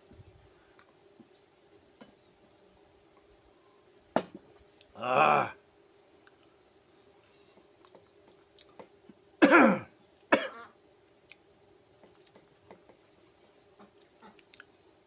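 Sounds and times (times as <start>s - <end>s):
faint clicks of eating rice: 0.6s - 2.2s, 4.7s - 5.0s, 6.2s - 6.6s, 7.2s - 9.2s, 11.1s - 14.8s
man clearing his throat: 9.4s - 9.8s.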